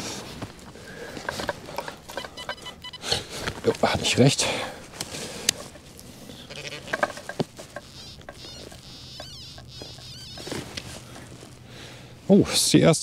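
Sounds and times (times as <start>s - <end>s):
high-pitched pinpointer buzz: 2.1s - 3.1s, 7.6s - 11.1s
probe scraping soil: 5.1s - 11.6s.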